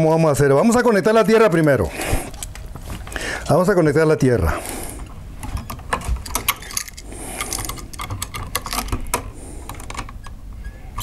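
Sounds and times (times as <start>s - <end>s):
pliers and wire clicking: 5.4s - 10.4s.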